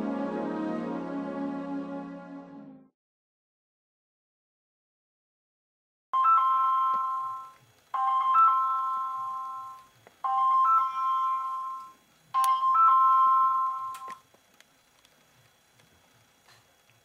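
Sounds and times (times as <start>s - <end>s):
mobile phone ringtone chiming: 6.2s - 14.2s.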